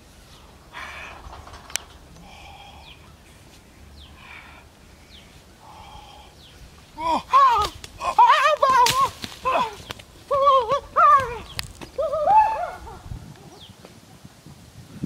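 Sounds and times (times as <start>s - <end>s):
man yelling: 7.0s - 12.9s.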